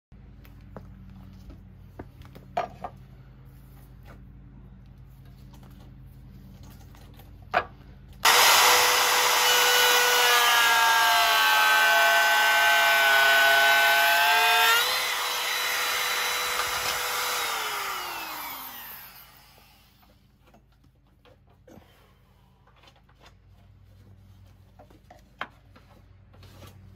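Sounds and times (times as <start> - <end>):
router whining: 8.2 - 20.2.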